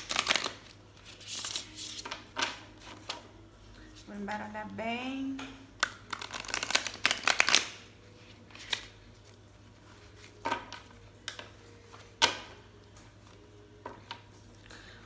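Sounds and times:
cards being shuffled: 0.0s - 3.3s, 5.8s - 12.1s.

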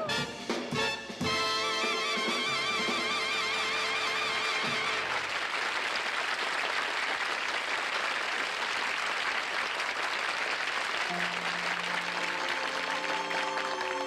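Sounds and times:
music: 0.0s - 5.2s, 11.1s - 14.0s
audience applauding: 2.9s - 14.0s.

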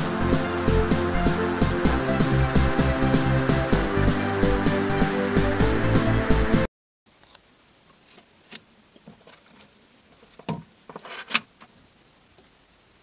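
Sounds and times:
electronic music: 0.0s - 6.7s.

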